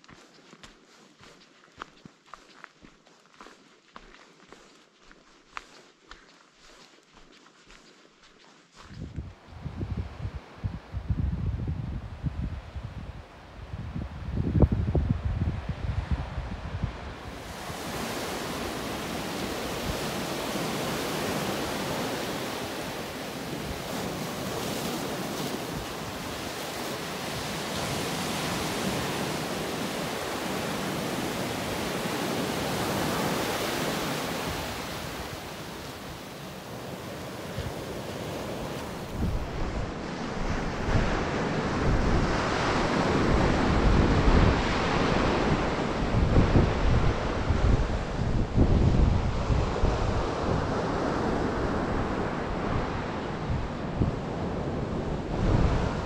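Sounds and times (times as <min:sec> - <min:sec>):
wind buffeting microphone: 0:08.8 - 0:56.0
surf breaking on beach: 0:16.9 - 0:56.0.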